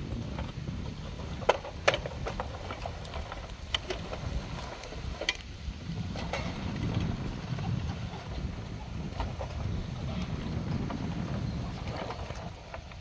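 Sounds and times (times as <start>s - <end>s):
wind rumble on microphone: 0.0s - 13.0s
plastic toy trucks clicking: 0.3s - 5.5s.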